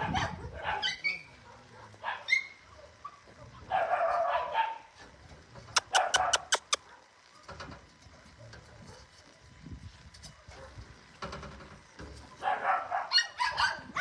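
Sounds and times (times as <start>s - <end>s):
dogs barking: 0.0s - 5.0s, 5.8s - 7.6s, 10.3s - 10.8s, 12.4s - 14.0s
dog yapping sharply: 5.8s - 7.5s, 12.4s - 14.0s.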